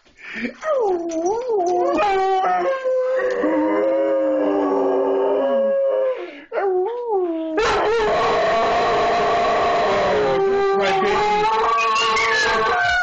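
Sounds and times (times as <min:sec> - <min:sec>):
dogs howling: 0:00.8 - 0:13.0.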